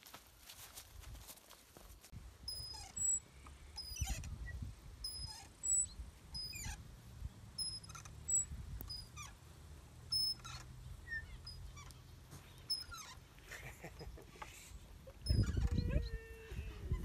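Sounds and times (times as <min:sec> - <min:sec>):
swing chains squeaking: 0:02.4 - 0:06.9, 0:07.5 - 0:13.4, 0:14.9 - 0:17.0.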